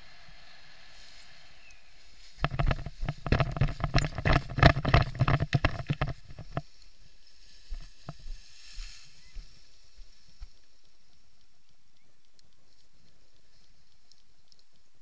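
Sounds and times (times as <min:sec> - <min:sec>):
wind rumble: 0:00.0 - 0:06.7
light ticks: 0:01.1 - 0:15.0.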